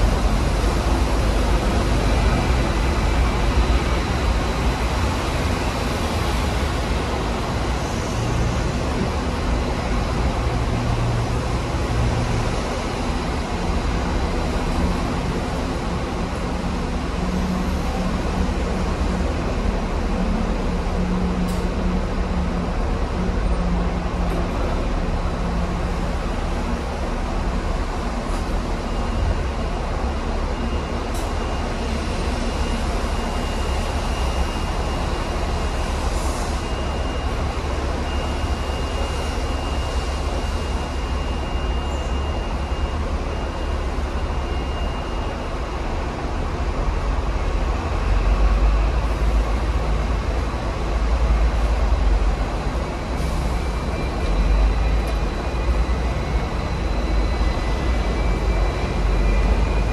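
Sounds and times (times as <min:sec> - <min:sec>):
electric tram rumbling: 0:00.0 - 0:59.9
thin steady high tone: 0:26.0 - 0:46.3.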